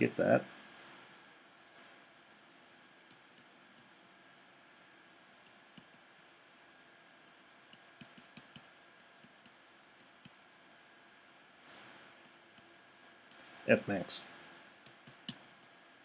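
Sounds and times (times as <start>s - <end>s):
stylus tapping on a pen tablet: 5.4s - 6.1s, 7.3s - 10.4s, 14.8s - 15.5s.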